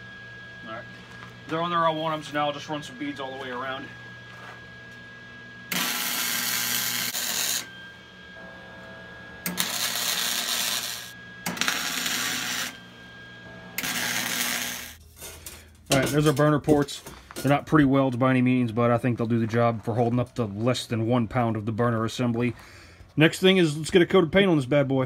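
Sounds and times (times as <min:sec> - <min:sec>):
low steady hum: 0:00.0 - 0:25.0
welding arc crackling: 0:05.7 - 0:07.7, 0:08.4 - 0:12.9, 0:13.5 - 0:15.0.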